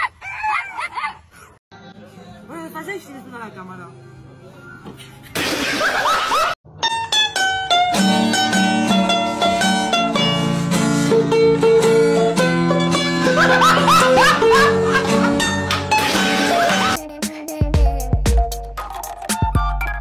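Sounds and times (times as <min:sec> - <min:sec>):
plucked string melody: 0:06.7 - 0:17.0
musical accompaniment: 0:06.7 - 0:20.0.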